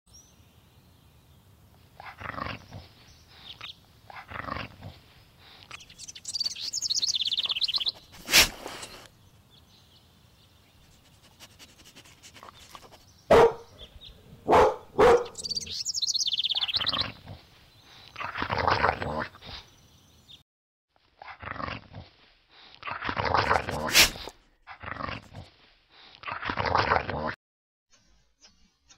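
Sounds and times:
dog barking: 13.3 - 13.8, 14.4 - 15.7.

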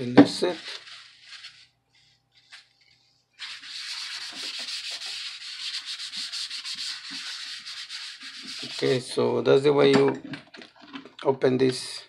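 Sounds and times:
tissue paper rubbing on plastic: 0.4 - 9.1.

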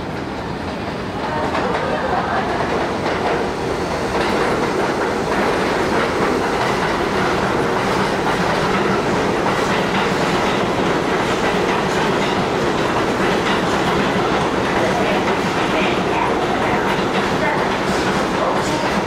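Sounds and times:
subway train rumbling: 0.0 - 19.0.

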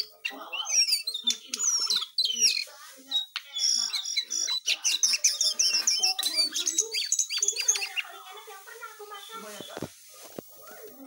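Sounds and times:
songbird singing: 0.0 - 9.9.

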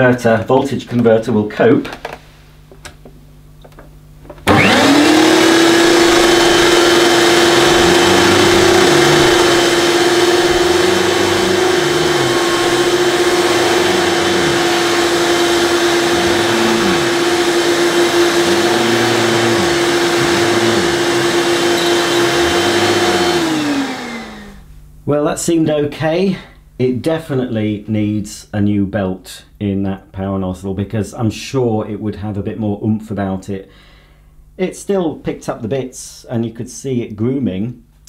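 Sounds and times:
vacuum cleaner motor: 4.4 - 24.6
vacuum nozzle pushed over carpet: 4.5 - 24.5.

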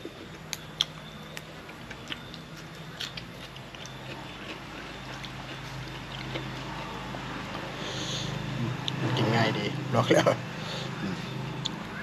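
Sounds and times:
person chewing: 0.0 - 9.0.

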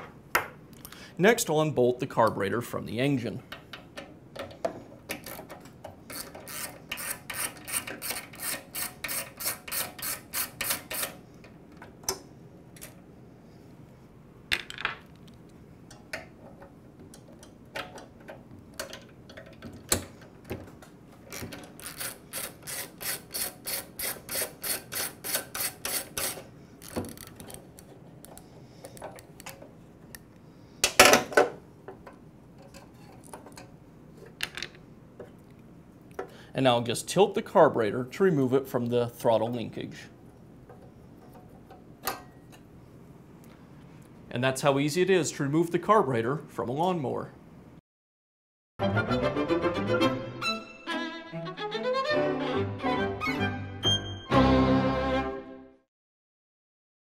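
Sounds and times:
ratchet wrench clicking: 6.1 - 11.2, 21.3 - 27.5.

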